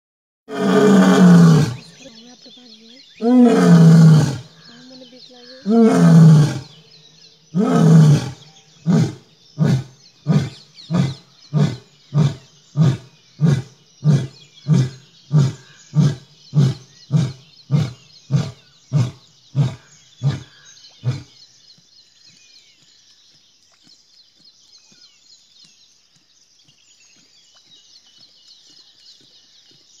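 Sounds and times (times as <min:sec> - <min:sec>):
lion grunting: 0:03.2 - 0:04.8, 0:05.6 - 0:06.7, 0:07.5 - 0:21.4.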